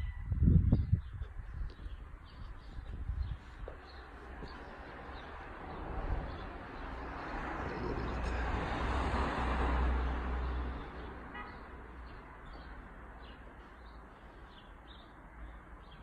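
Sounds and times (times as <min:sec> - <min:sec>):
vehicle passing: 0:03.6 - 0:13.9.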